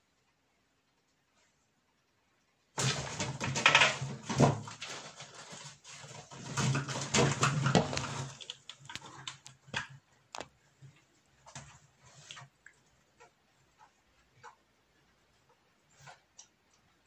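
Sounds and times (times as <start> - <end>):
scrabbling and thrashing struggle: 2.8 - 10.0.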